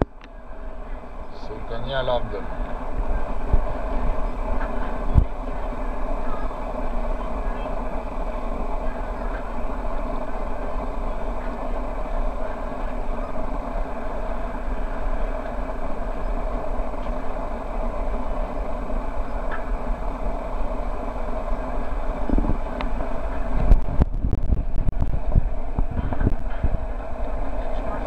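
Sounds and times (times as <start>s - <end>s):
background rumble: 0.0s - 28.0s.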